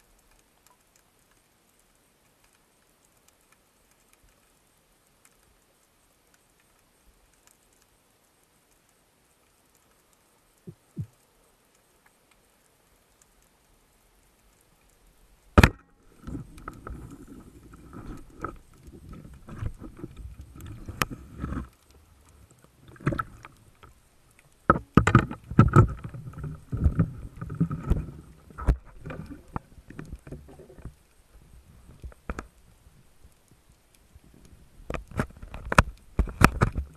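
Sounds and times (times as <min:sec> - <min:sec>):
underwater knocks and scraping: 0:10.6 - 0:11.2, 0:15.5 - 0:33.4, 0:34.2 - 0:36.9
speargun crack underwater: 0:15.5 - 0:31.0, 0:34.9 - 0:36.9.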